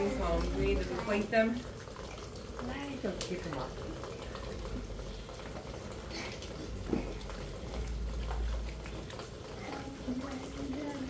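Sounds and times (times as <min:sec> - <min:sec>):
pool water splashes: 0:00.0 - 0:11.0
rain hissing: 0:00.0 - 0:11.0.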